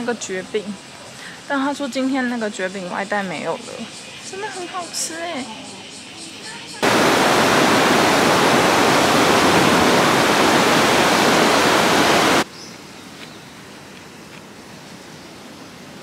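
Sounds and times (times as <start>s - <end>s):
faint outdoor ambience: 0.0s - 16.0s
river water rushing over weir: 6.8s - 12.4s.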